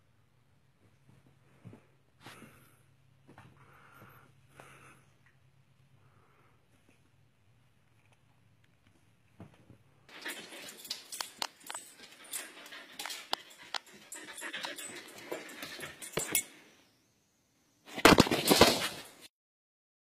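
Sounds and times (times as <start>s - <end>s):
sharp clicks and scuffles: 7.9s - 16.5s.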